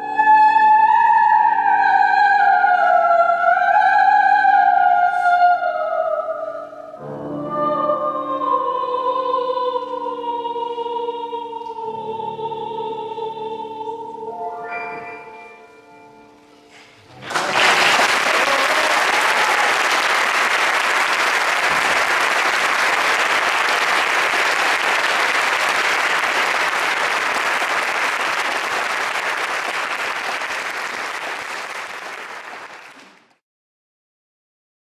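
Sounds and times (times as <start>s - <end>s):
audience applauding: 17.1s - 33.4s.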